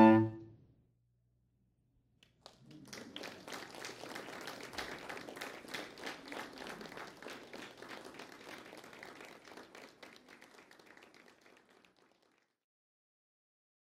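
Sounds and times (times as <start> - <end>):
audience applauding: 2.4 - 12.5.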